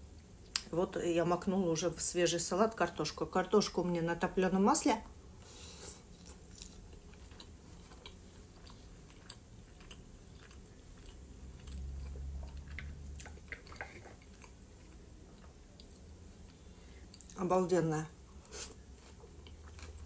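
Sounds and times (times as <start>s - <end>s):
chewing food: 6.0s - 17.4s, 18.4s - 20.0s
wet mouth clicks and smacks: 12.5s - 14.4s.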